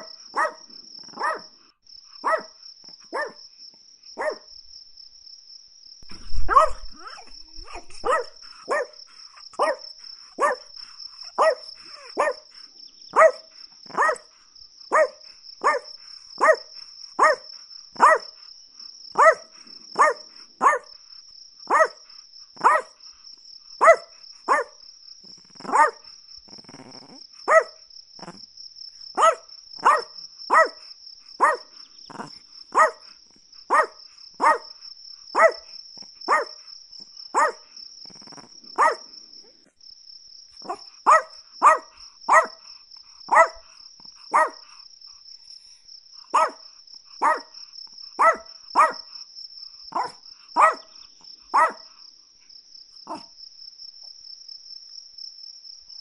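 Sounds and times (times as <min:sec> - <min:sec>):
small dog barking: 0:00.0 - 0:01.6, 0:02.2 - 0:03.4, 0:04.2 - 0:04.5, 0:06.1 - 0:18.4, 0:19.1 - 0:21.0, 0:21.7 - 0:23.0, 0:23.8 - 0:24.8, 0:25.5 - 0:28.4, 0:29.1 - 0:36.7, 0:37.3 - 0:39.6, 0:40.6 - 0:42.7, 0:43.3 - 0:44.8, 0:46.3 - 0:49.2, 0:49.9 - 0:52.0, 0:53.0 - 0:53.4
cricket trill: 0:00.0 - 0:56.0.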